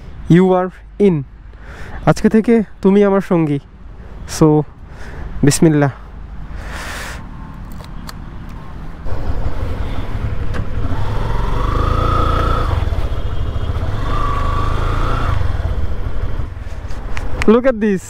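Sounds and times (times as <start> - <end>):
motorcycle engine: 9.0 - 16.3.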